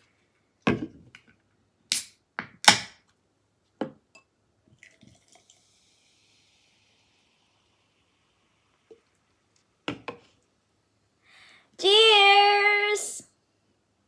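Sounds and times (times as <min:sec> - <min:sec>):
beer pouring with fizzing hiss: 0:04.7 - 0:10.8.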